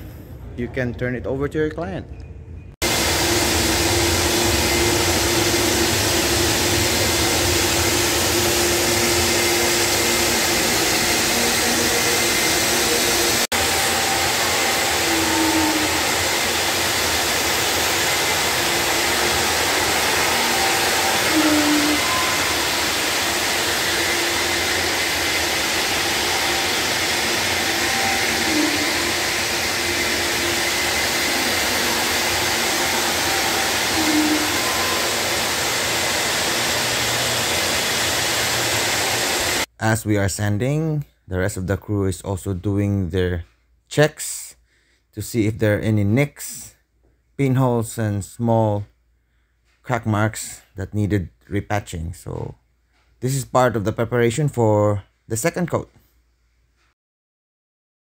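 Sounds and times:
floor grinding machine sanding: 2.8 - 39.7.

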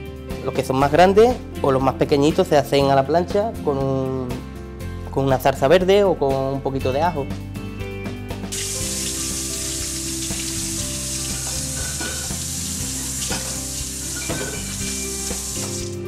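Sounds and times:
background music: 0.0 - 16.0
tap running into steel sink: 13.2 - 16.0.

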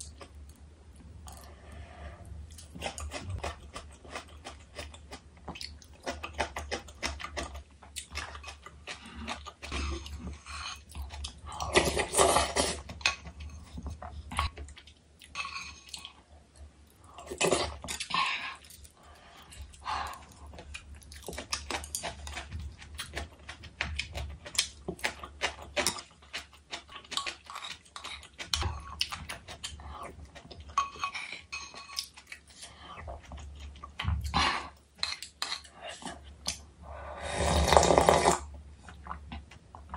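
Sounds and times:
chewing and crunching: 2.4 - 36.7.

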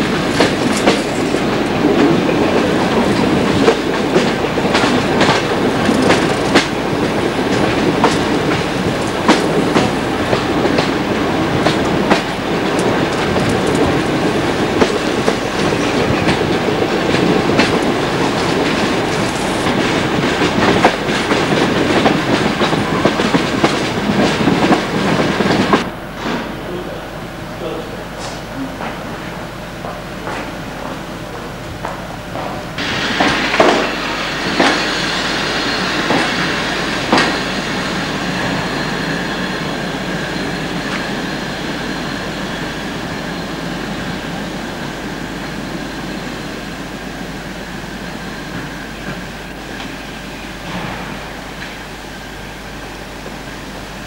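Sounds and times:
wheels clicking over rail joints: 0.0 - 25.8
train rumbling along track: 0.0 - 54.0.

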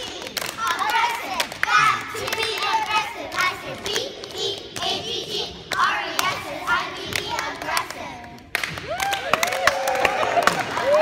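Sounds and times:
girls clapping hands: 0.0 - 4.9, 7.1 - 11.0
children chanting and talking: 0.0 - 8.5.

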